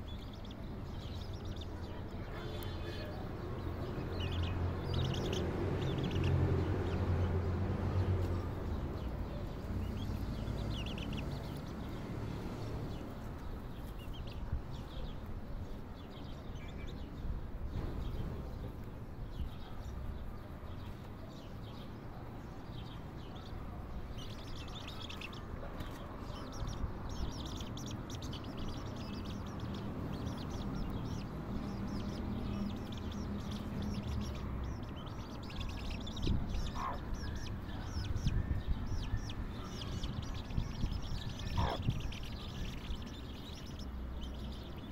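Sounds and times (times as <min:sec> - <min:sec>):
chicks peeping: 0:00.0 - 0:15.2, 0:23.4 - 0:44.9
hen clucking: 0:36.7 - 0:37.2, 0:41.4 - 0:42.3.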